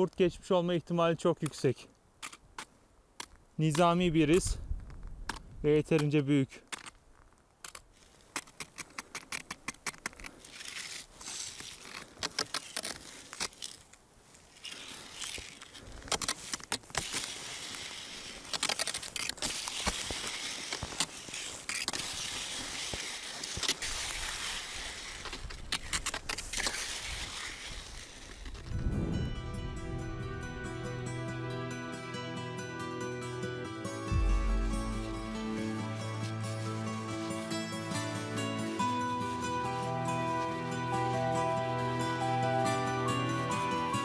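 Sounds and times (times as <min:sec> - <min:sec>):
ski poles clicking on ice: 0:01.4 - 0:04.4, 0:05.3 - 0:28.7
skis scraping over ice: 0:09.4 - 0:30.8.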